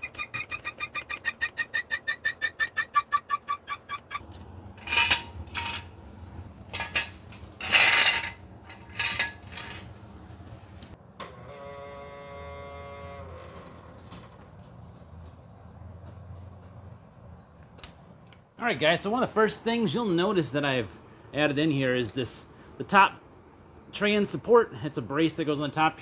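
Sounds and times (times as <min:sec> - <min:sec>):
metallic clanks and clinks: 0:04.8 - 0:06.0, 0:06.6 - 0:10.0.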